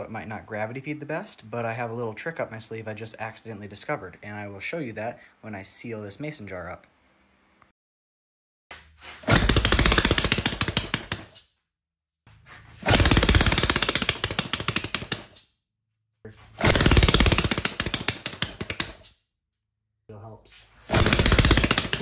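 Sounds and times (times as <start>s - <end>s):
engine popping when cranked: 9.3s - 11.3s, 12.8s - 15.3s, 16.6s - 19.0s, 20.9s - 22.0s.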